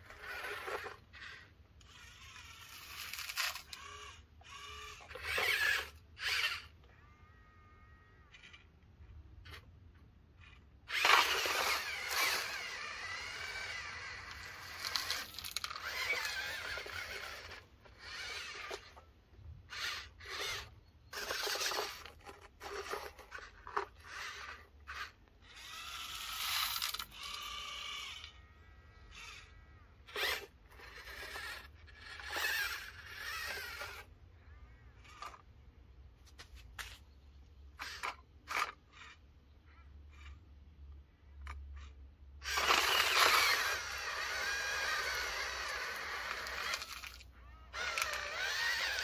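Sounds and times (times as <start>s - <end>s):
scraping and crunching gravel: 10.9s - 19.0s, 42.5s - 49.0s.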